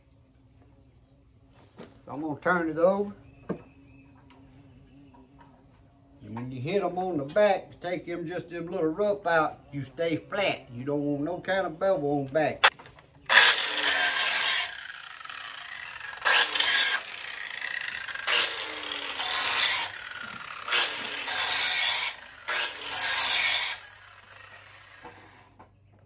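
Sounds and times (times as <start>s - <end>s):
angle grinder grinding steel: 13.3s - 25.6s.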